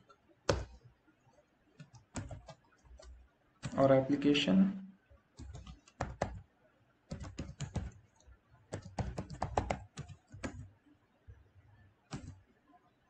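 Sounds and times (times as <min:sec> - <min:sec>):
keyboard typing: 0:00.0 - 0:03.9, 0:05.4 - 0:06.4, 0:07.1 - 0:10.8, 0:12.1 - 0:12.5.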